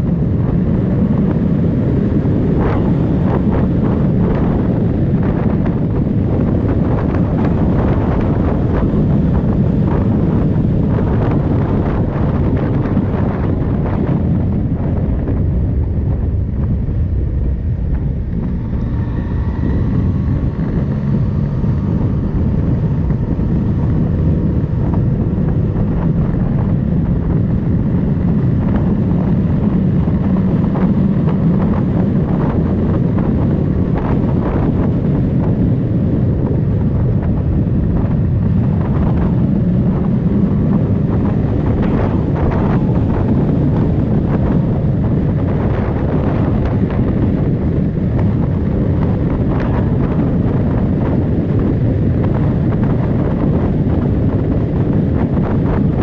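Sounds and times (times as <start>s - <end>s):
motorcycle engine running: 0.0s - 56.0s
wind buffeting microphone: 0.0s - 56.0s.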